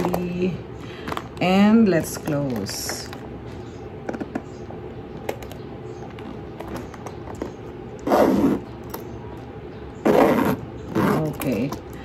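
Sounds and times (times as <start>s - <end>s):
metal zipper zipping: 8.0s - 8.7s, 10.0s - 11.5s.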